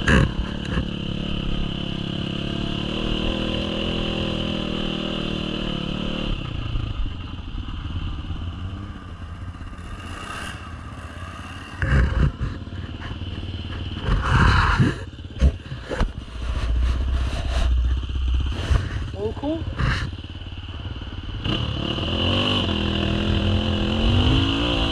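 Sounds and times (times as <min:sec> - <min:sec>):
dirt bike engine: 0:00.0 - 0:24.9
camera knocks and scraping: 0:11.8 - 0:17.7.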